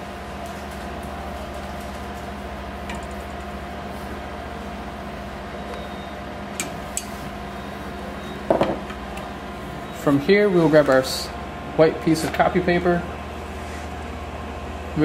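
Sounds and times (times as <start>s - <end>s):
machine hum: 0.0s - 15.0s.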